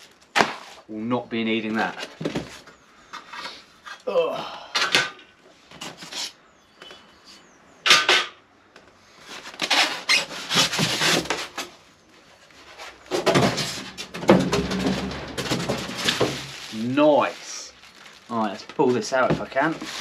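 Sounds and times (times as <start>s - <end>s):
foam scraping against cardboard: 9.3s - 11.7s, 19.4s - 20.0s.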